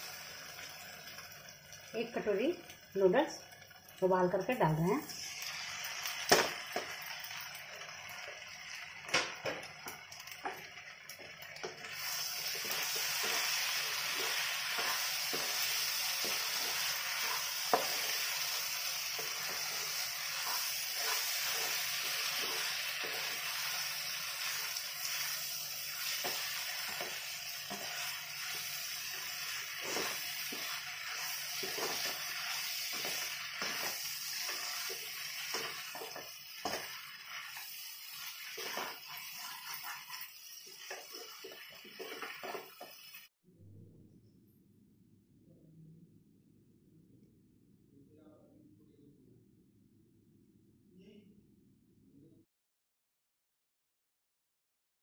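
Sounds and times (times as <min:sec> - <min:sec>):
noodles sizzling in a pan: 0:00.0 - 0:43.3
spatula scraping a pan: 0:11.9 - 0:43.2.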